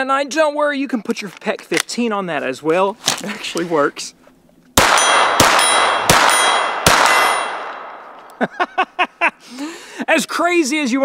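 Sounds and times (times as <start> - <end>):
steel target clanging: 4.8 - 8.0
suppressed pistol shots: 4.8 - 8.4.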